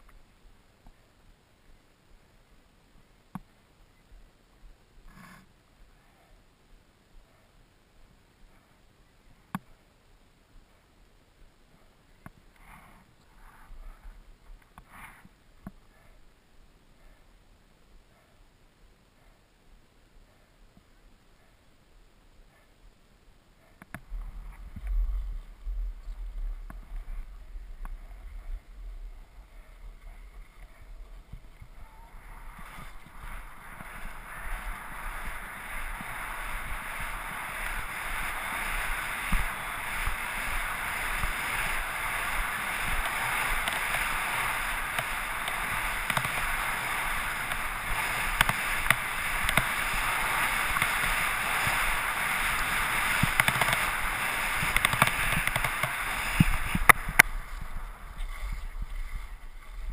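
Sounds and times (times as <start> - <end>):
skis scraping on packed snow: 24.1 - 59.9.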